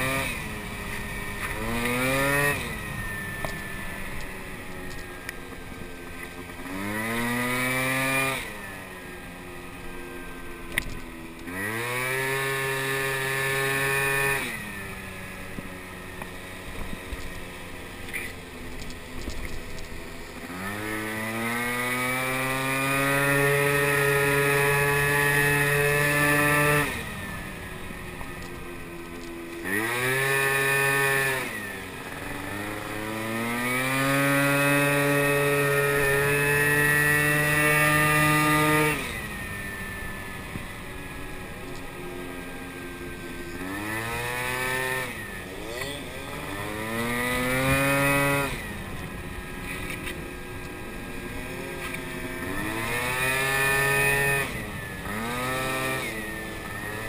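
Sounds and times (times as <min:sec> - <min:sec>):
moped engine revving: 0:00.0 - 0:57.0.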